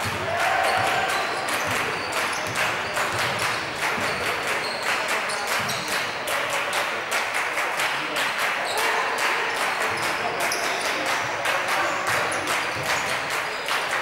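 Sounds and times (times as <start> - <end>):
voices in hall: 0.0 - 14.0
shoes squeaking on floor: 0.7 - 6.0.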